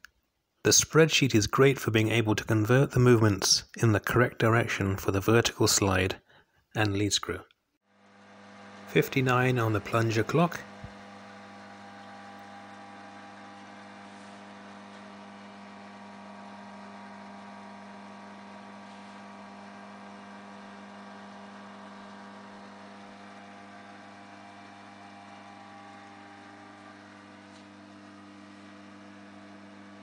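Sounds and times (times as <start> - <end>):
lathe motor humming: 8.0 - 30.0.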